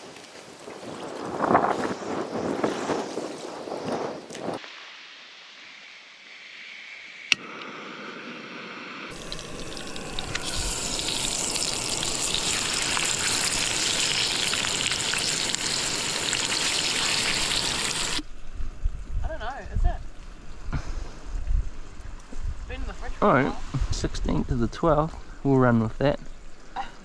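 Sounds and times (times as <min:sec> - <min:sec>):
oil sizzling in a frying pan: 0:09.1 - 0:18.2.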